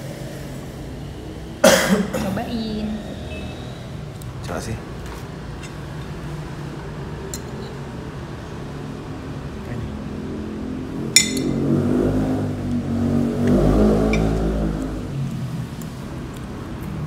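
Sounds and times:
low drone: 0:09.8 - 0:15.7
metal spoon clinking on plate: 0:11.2 - 0:11.6.

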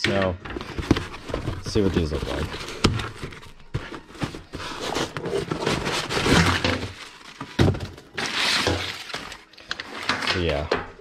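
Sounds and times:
packing paper rustling: 0:00.5 - 0:10.6
cardboard box flaps opening: 0:00.6 - 0:07.8.

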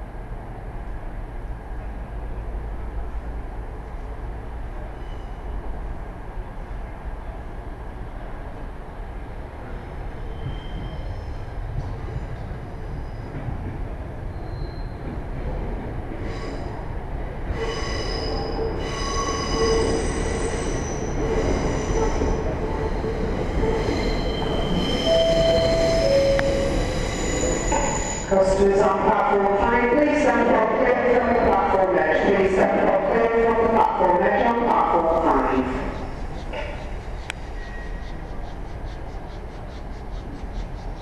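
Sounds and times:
metallic wheel squeal: 0:05.0 - 0:05.6, 0:10.3 - 0:11.4, 0:23.6 - 0:28.3
steam train low rumble: 0:35.0 - 0:41.0.

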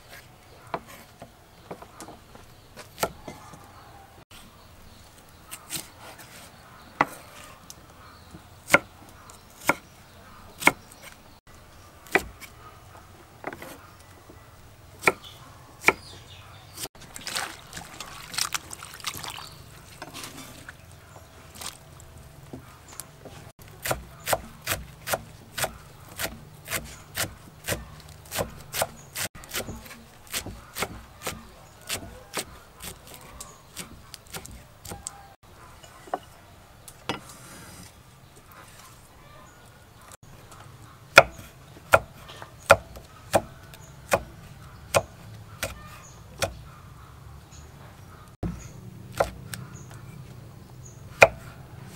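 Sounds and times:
knife chopping on wooden board: 0:23.8 - 0:33.2, 0:33.8 - 0:35.2, 0:41.1 - 0:46.6, 0:49.2 - 0:49.4, 0:51.2 - 0:51.5.

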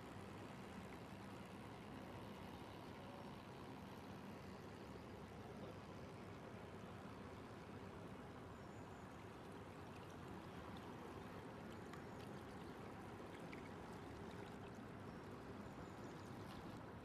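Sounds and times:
light ticks: 0:11.7 - 0:12.6.

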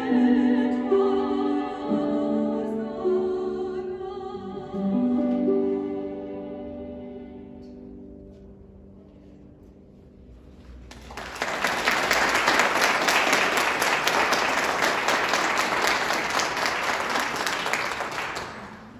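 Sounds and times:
audience applause: 0:10.9 - 0:18.9.

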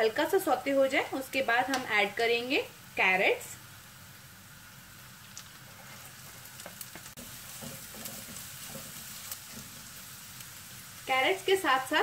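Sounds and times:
vegetables sizzling in hot oil: 0:00.0 - 0:12.0
spatula scraping and tapping pan: 0:05.7 - 0:10.0.

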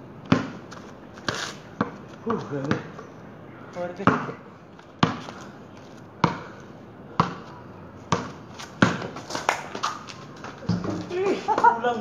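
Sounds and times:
basketball bouncing on concrete: 0:00.2 - 0:00.6, 0:01.2 - 0:03.0, 0:04.0 - 0:04.4, 0:05.0 - 0:05.4, 0:06.2 - 0:11.7.

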